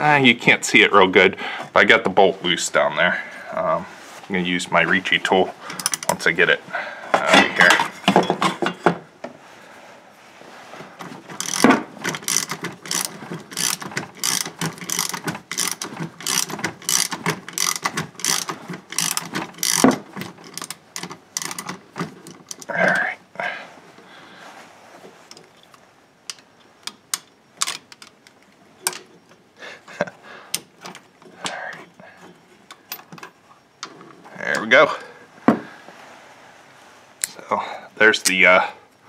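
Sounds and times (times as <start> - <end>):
socket ratchet clicking: 11.4 - 21.8.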